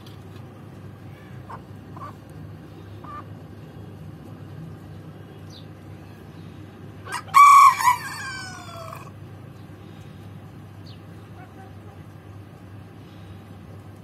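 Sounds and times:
rooster crowing: 0:07.0 - 0:09.1.

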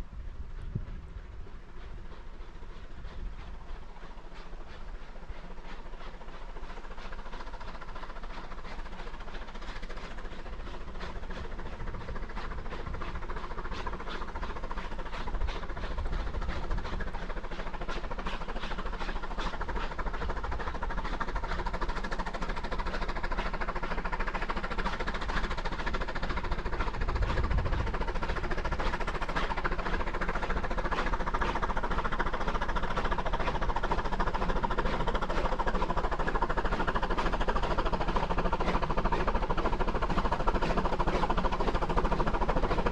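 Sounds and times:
steam exhaust beats: 0:00.0 - 0:42.9
steady mechanical din: 0:24.7 - 0:42.9.

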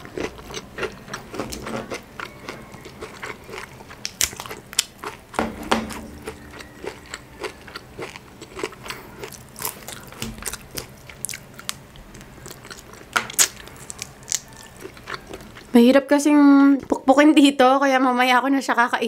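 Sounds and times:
chewing: 0:00.0 - 0:05.4, 0:06.2 - 0:15.8
crab shell crackling: 0:00.0 - 0:15.8.

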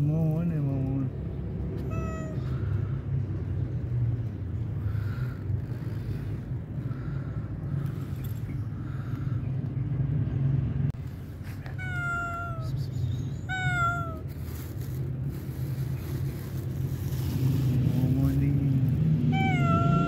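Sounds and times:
cat meowing: 0:01.8 - 0:02.9, 0:11.6 - 0:12.8, 0:13.4 - 0:14.5, 0:19.3 - 0:20.0.

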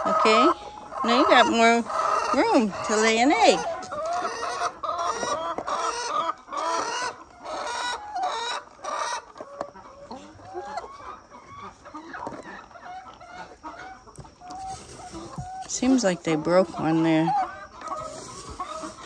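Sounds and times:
hens clucking: 0:00.0 - 0:19.0.

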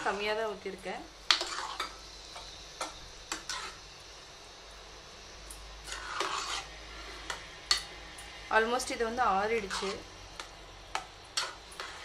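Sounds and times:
metal spoon mixing rice: 0:01.3 - 0:02.0, 0:03.3 - 0:03.8, 0:05.8 - 0:07.9, 0:09.6 - 0:12.0
spoon scraping and knocking pot: 0:01.3 - 0:03.8, 0:05.8 - 0:07.9, 0:09.7 - 0:12.0.

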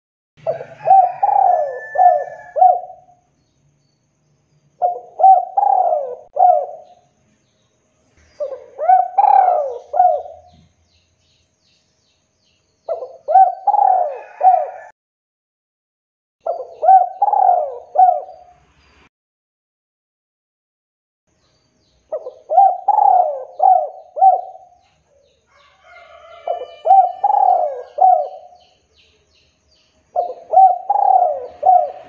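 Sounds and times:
dove cooing: 0:00.4 - 0:03.2, 0:04.8 - 0:07.0, 0:08.3 - 0:10.7, 0:12.9 - 0:14.9, 0:16.4 - 0:18.5, 0:22.1 - 0:24.9, 0:25.5 - 0:28.6, 0:30.2 - 0:32.0.

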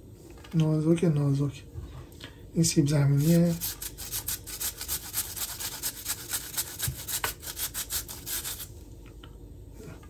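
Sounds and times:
potato rasping on metal grater: 0:03.2 - 0:08.7.

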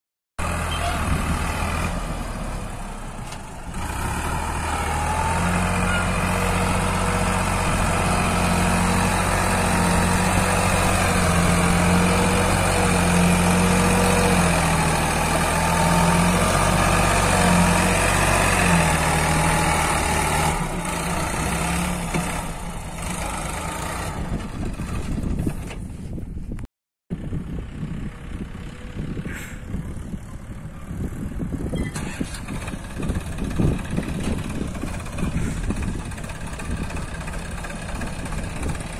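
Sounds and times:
tractor diesel engine under load: 0:00.4 - 0:38.9.

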